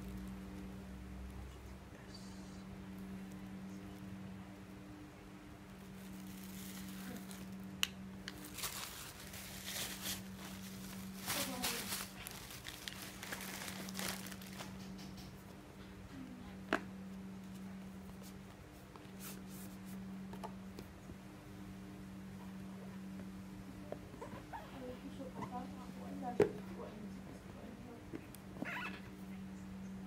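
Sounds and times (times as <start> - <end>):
steady low hum: 0.0 - 30.0
plastic bag crinkling: 6.0 - 7.7, 8.3 - 15.0.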